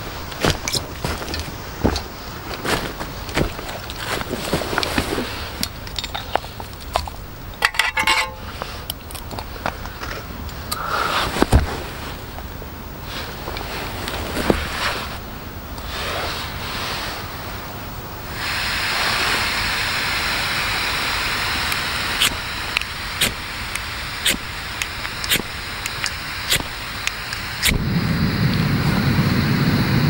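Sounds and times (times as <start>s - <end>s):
gas hissing from stove burner: 0.0s - 9.0s, 18.2s - 30.0s
burner flame burning: 0.0s - 30.0s
igniter clicks: 21.6s - 27.9s.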